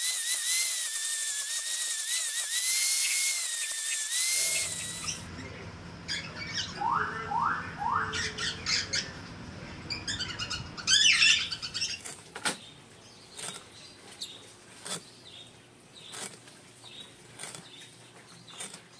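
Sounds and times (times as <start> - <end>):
birds chirping loudly: 4.4 - 9.3, 9.9 - 16.2.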